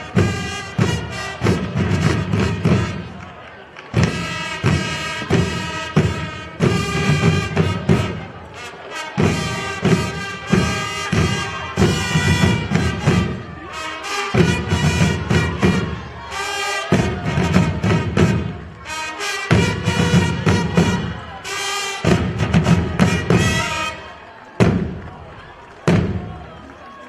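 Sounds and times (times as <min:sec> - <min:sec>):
marching drums beat: 0:00.0 - 0:03.1, 0:04.0 - 0:08.3, 0:09.2 - 0:16.2, 0:16.8 - 0:18.8, 0:19.4 - 0:24.0, 0:24.6 - 0:25.2, 0:25.9 - 0:26.4
fanfare trumpets: 0:00.0 - 0:26.6.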